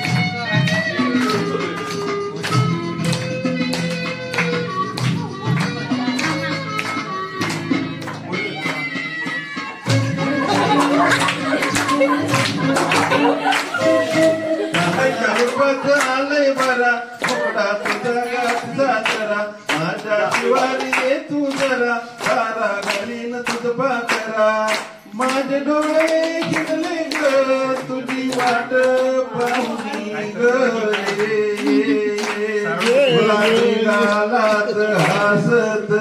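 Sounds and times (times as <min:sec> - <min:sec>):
group clapping in time: 0:00.0 - 0:35.8
man singing into microphone: 0:12.6 - 0:36.0.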